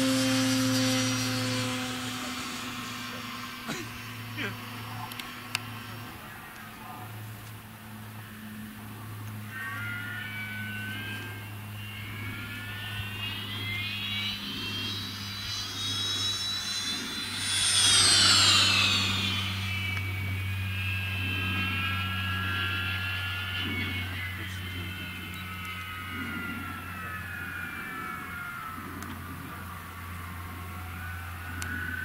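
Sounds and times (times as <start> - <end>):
electric glider whining: 0.0 - 32.0.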